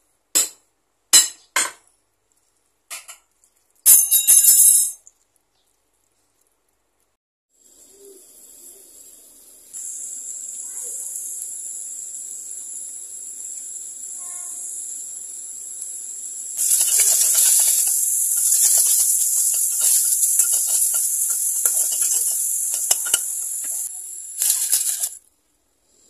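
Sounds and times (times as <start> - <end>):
meat sizzling in a pot: 7.6 - 26.0
metal spoon stirring meat: 16.6 - 25.2.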